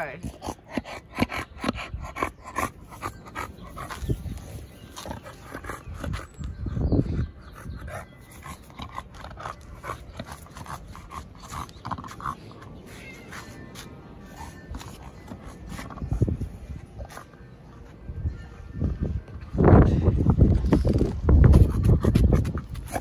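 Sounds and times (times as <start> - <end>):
dog panting: 0.2 - 17.4.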